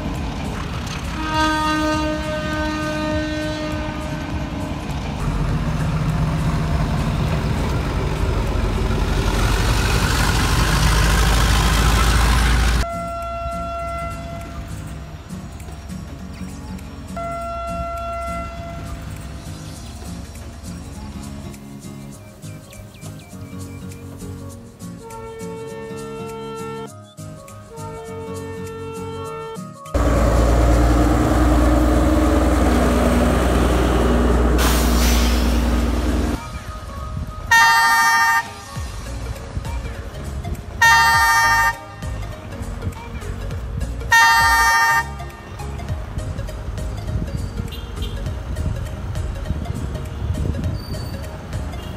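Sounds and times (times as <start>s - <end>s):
wheels on rails: 0.0s - 22.2s
wheel and rail noise: 0.0s - 26.4s, 29.9s - 51.9s
diesel train engine rumble: 0.0s - 26.8s, 27.8s - 51.9s
burst of hiss: 34.5s - 36.4s.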